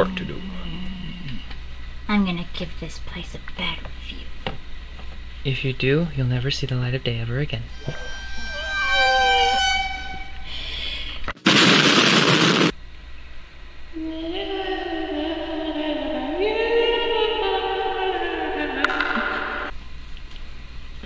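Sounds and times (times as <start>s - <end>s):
long held singing note: 7.7s - 10.6s
loud hiss: 7.7s - 12.8s.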